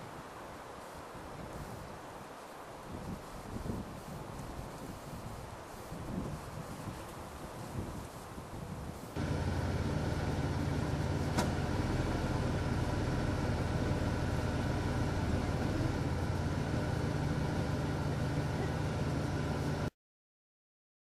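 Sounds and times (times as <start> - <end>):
engine idling: 9.2 - 19.9.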